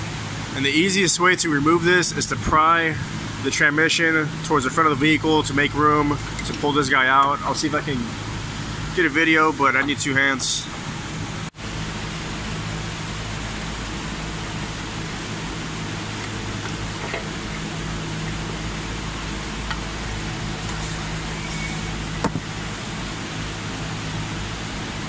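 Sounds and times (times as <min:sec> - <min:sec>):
fan hiss with low hum: 0:00.0 - 0:25.0.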